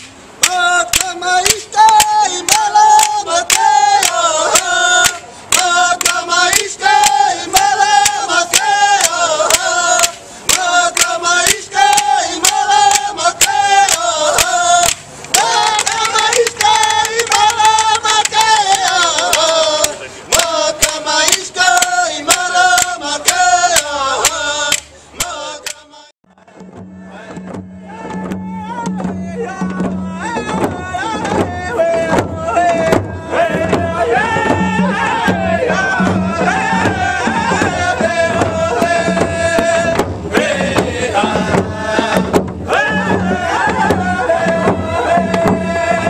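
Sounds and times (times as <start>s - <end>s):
wooden clapper sticks clacking: 0.4s - 25.8s
men singing in unison: 0.4s - 46.0s.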